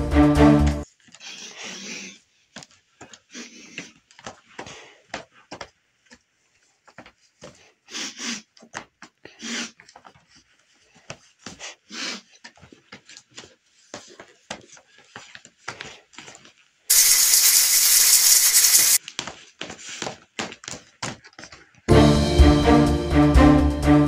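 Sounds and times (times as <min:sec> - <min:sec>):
man sniffing like a dog: 0:07.9 - 0:08.4.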